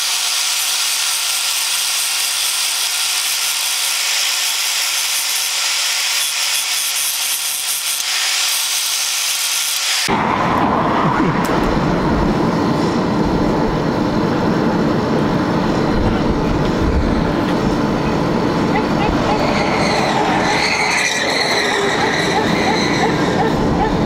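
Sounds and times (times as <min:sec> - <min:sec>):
angle grinder grinding steel: 0:00.0 - 0:10.1, 0:18.7 - 0:24.0
forge fire rushing: 0:10.1 - 0:24.0.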